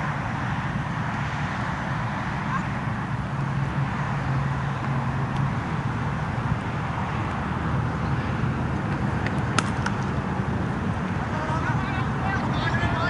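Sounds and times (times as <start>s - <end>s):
distant road traffic: 0.0s - 13.0s
cricket bat hitting ball: 9.2s - 10.1s.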